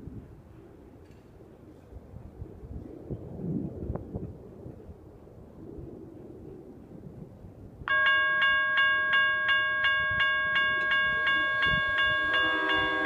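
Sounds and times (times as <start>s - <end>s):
railroad crossing bell ringing: 7.9s - 13.0s.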